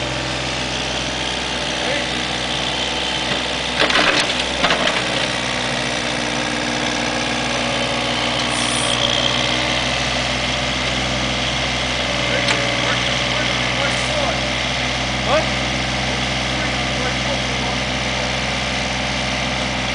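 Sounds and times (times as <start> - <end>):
diesel engine running: 0.0 - 19.9.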